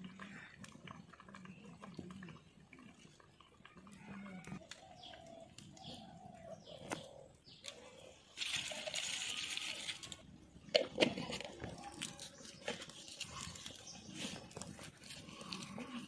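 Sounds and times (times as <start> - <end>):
bird cooing: 4.0 - 8.0.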